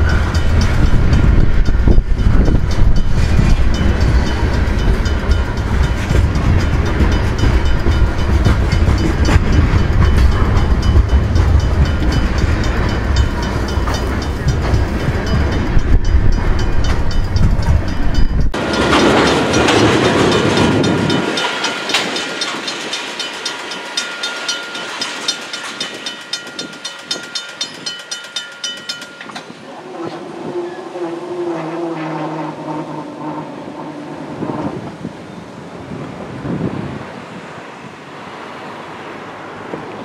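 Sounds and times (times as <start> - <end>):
wheels clacking over rail joints: 0.0 - 35.2
freight train rumbling: 0.0 - 40.0
distant locomotive horn: 29.6 - 35.2.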